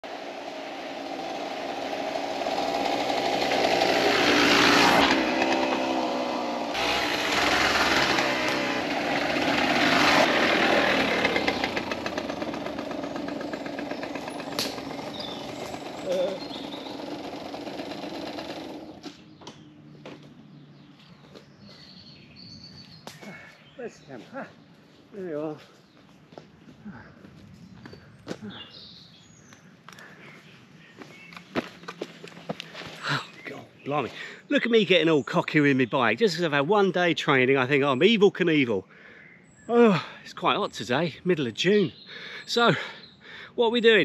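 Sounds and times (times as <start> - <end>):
motorcycle engine revving: 0.0 - 20.4.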